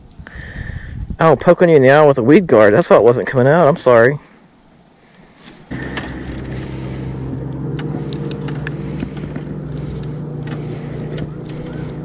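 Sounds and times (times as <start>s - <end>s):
boat motor running: 5.5s - 12.0s.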